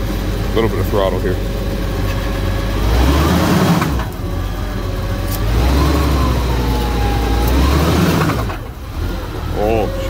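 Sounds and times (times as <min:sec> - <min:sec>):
engine revving: 0:00.0 - 0:10.0.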